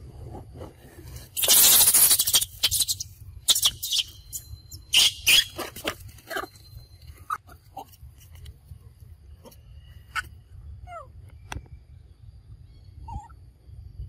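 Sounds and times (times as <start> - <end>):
loud scraping rustle: 0.0 - 3.0
monkeys squealing: 1.4 - 6.6, 13.1 - 13.3.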